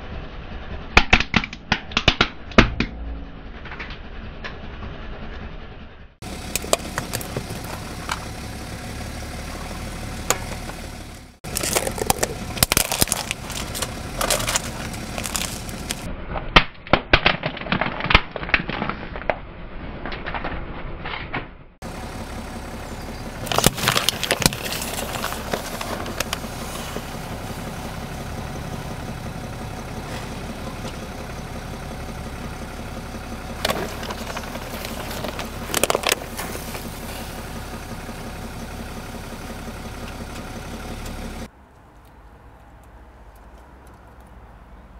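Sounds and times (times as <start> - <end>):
car engine idling: 0.0 - 16.1, 21.8 - 41.5
tyre crushing plastic objects: 6.5 - 8.3, 11.4 - 19.4, 23.4 - 27.0, 33.6 - 37.0.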